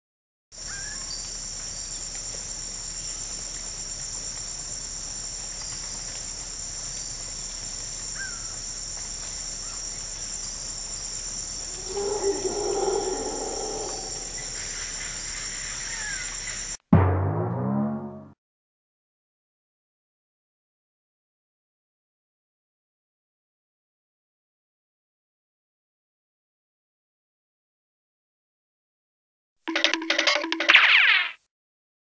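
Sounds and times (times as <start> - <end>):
faint bird chirps: 0.6 - 1.3, 11.7 - 16.8
insects singing: 0.6 - 16.8
loud pitched sound: 17.0 - 18.4.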